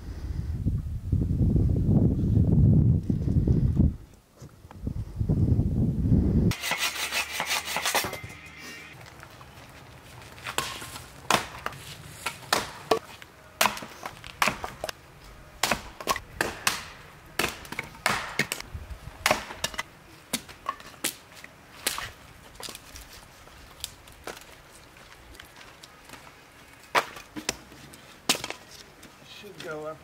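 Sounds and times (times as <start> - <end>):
axe chopping wood: 10.5 - 15.0, 15.6 - 18.6, 19.2 - 21.2, 28.3 - 28.6.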